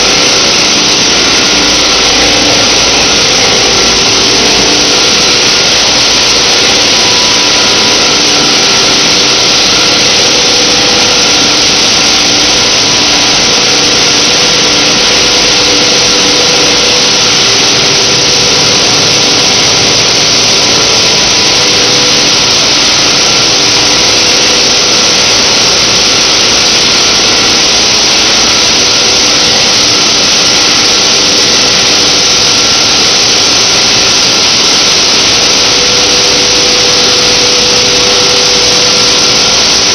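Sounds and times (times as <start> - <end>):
faint steady hums: 0.0 - 25.5
recycling machinery din: 0.0 - 39.9.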